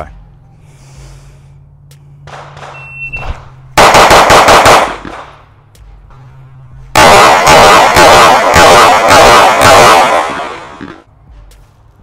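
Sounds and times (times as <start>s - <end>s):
pistol shots: 2.3s - 5.4s, 7.0s - 11.0s
shot timer beep: 2.7s - 3.2s.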